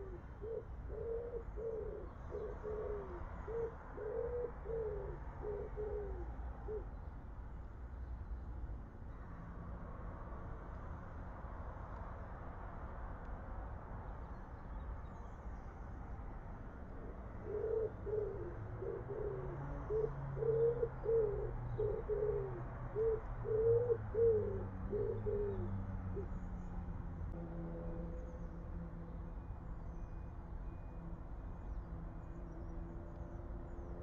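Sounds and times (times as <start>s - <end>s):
pigeon cooing: 0.0s - 6.9s, 17.4s - 26.3s.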